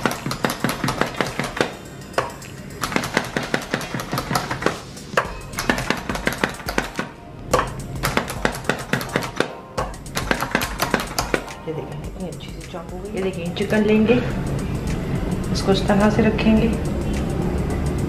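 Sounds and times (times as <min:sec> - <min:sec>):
hand chopper clacking: 0:00.0 - 0:11.6.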